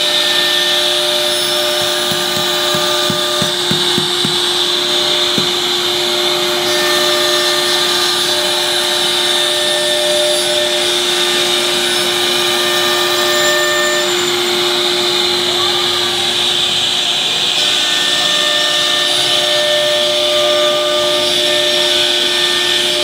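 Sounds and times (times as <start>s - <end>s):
bit cutting wood: 0.0s - 10.7s
router spindle whine: 0.0s - 23.0s
soft knocks: 1.8s - 5.8s.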